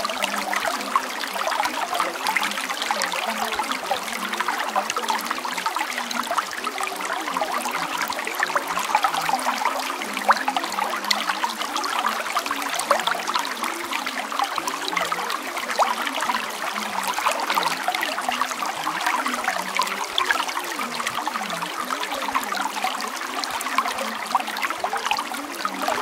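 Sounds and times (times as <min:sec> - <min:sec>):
water trickling and bubbling: 0:00.0 - 0:26.0.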